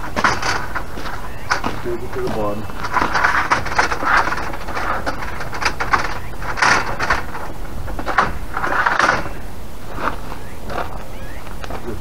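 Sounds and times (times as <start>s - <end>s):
metal rail scraping and sliding: 2.8s - 10.2s.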